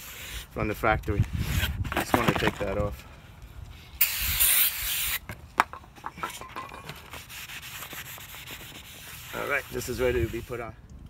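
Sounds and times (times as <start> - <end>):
cloth wiping metal: 6.9 - 10.6.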